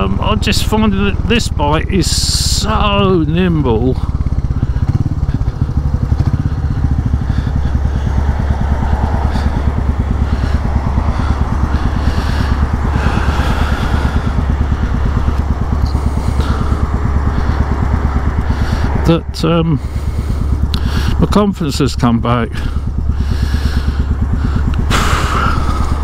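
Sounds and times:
motorcycle engine idling: 0:00.0 - 0:26.0.

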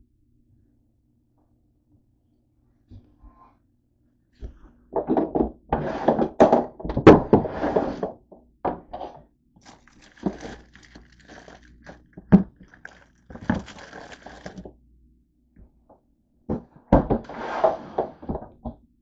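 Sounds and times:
plastic wrappers rustling: 0:09.6 - 0:14.7.

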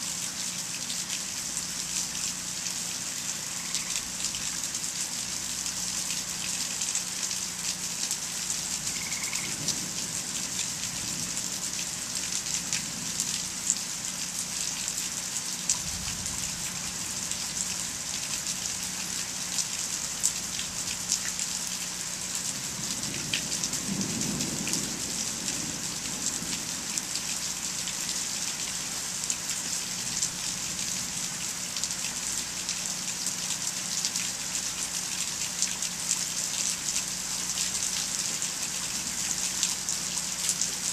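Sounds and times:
steady rain: 0:00.0 - 0:40.9
distant thunder rumble: 0:23.0 - 0:26.8.

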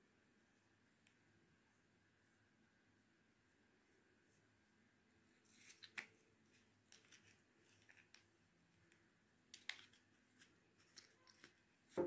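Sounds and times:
fingers handling plastic tube: 0:05.5 - 0:12.0.

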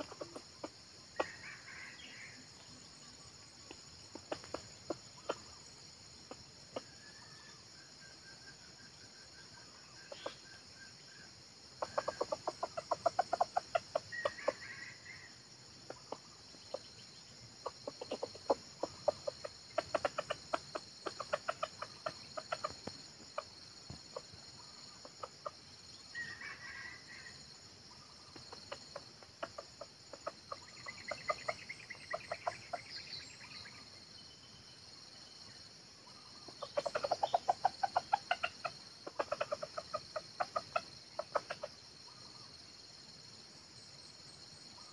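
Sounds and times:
junglefowl clucking: 0:00.0 - 0:02.3, 0:03.6 - 0:07.0, 0:10.0 - 0:10.6, 0:11.8 - 0:17.0, 0:17.6 - 0:27.4, 0:28.0 - 0:33.0, 0:36.2 - 0:42.4.

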